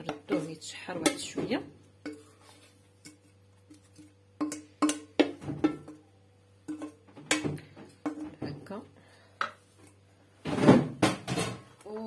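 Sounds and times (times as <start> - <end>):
wooden spoon scraping metal bowl: 2.0 - 4.2.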